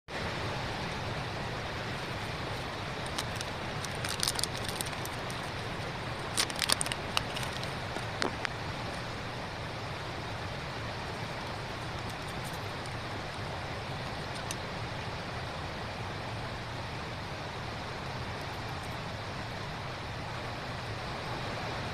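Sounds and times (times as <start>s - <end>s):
packaging clicking and crinkling: 3.0s - 8.5s.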